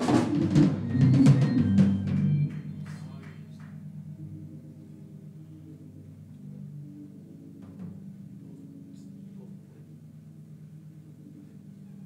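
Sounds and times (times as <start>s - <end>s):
drum kit strikes: 0.0s - 3.9s, 7.6s - 8.2s
held low chord: 0.0s - 12.0s.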